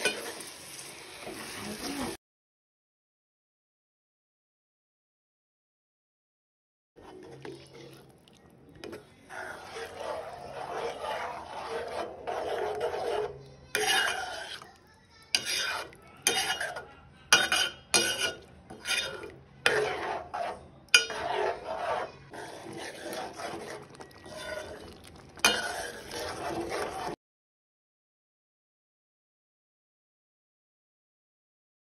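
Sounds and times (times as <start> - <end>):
spoon scraping steel pot: 7.0 - 27.2.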